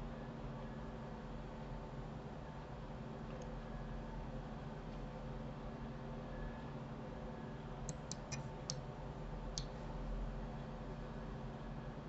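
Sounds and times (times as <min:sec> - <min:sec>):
faint low hum: 0:00.0 - 0:12.0
computer mouse clicks: 0:07.9 - 0:08.8.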